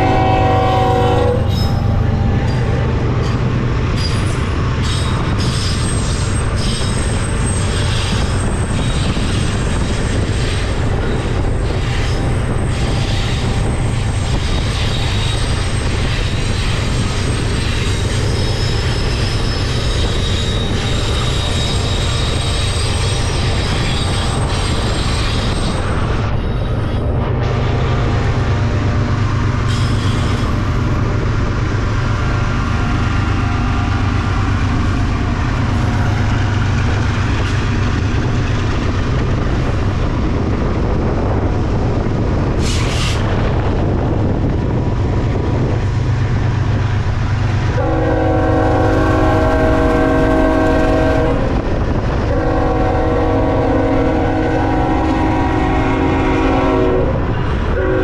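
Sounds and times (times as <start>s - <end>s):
locomotive air horn: 0.0s - 2.8s, 47.7s - 51.6s, 52.3s - 58.0s
freight train rumbling: 0.0s - 58.0s.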